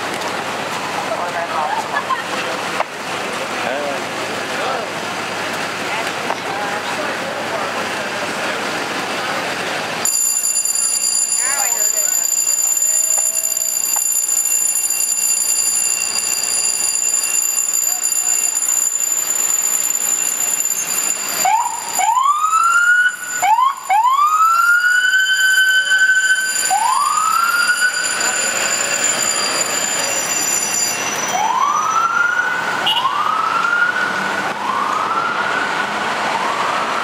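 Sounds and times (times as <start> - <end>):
street noise: 0.0 - 37.0
vehicle siren whooping and wailing: 20.8 - 30.3, 31.1 - 37.0.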